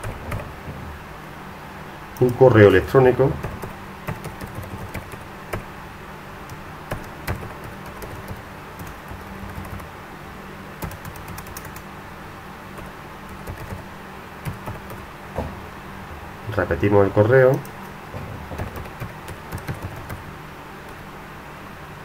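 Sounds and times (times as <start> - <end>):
low steady hum: 0.0 - 22.0
keyboard typing clicks: 2.2 - 2.4, 3.4 - 5.7, 6.5 - 9.9, 10.8 - 11.9, 12.8 - 13.8, 14.4 - 15.0, 17.5 - 20.2.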